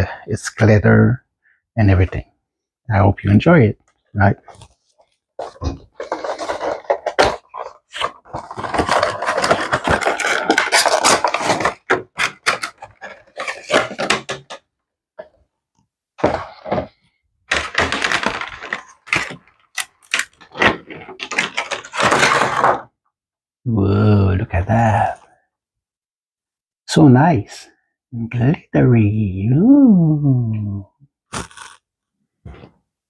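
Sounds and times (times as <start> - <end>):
cardboard and plastic crackling: 4.5 - 14.6, 16.2 - 22.9.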